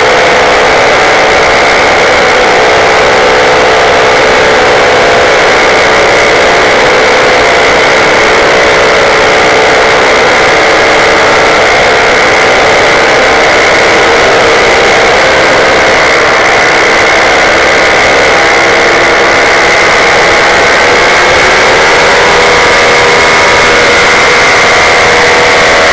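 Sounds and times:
paramotor engine and propeller: 0.0s - 25.9s.

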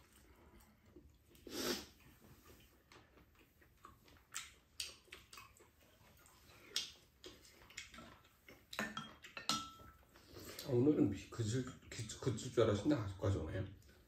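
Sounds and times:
faint chewing: 0.0s - 10.8s, 13.7s - 14.0s.

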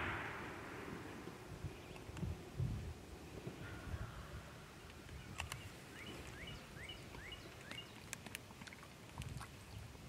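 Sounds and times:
faint field ambience: 0.0s - 10.0s
bird chirping: 4.8s - 8.2s
light clicks: 4.9s - 6.4s.

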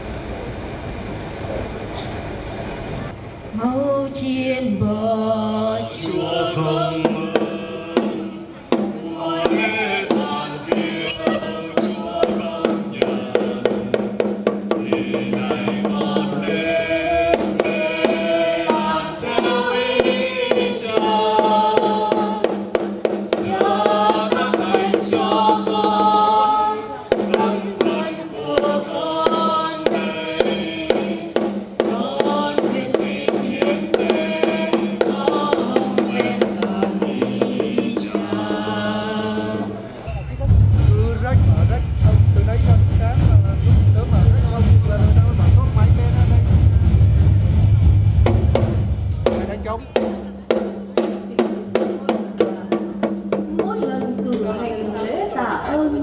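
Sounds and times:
slow sung melody: 3.6s - 40.0s
steady percussive beat: 7.1s - 16.7s, 40.3s - 54.6s.

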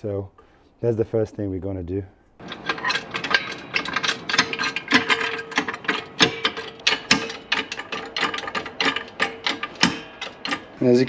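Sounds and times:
floor jack clicking and rattling: 2.4s - 10.8s.

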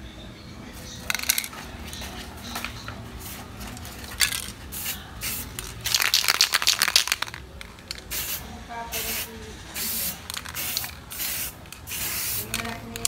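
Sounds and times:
aerosol can spraying: 8.0s - 13.0s.

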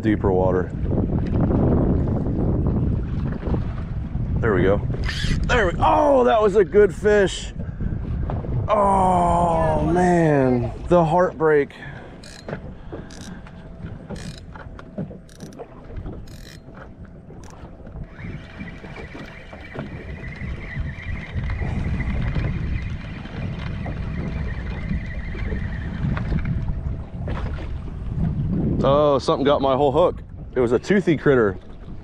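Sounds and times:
wind buffeting microphone: 0.0s - 32.0s
fishing reel whine: 5.0s - 5.7s, 12.2s - 26.5s.

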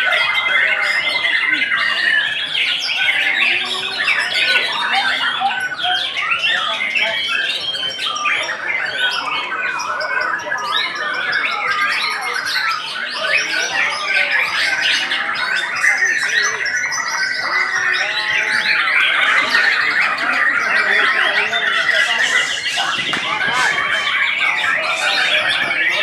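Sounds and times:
birds singing: 0.0s - 26.0s
fast even bird trill: 10.6s - 26.0s.

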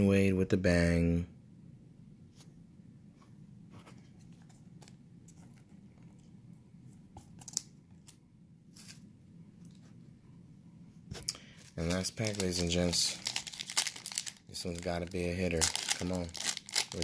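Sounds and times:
low room hum: 0.0s - 17.0s
trading cards being shuffled: 11.6s - 14.2s.

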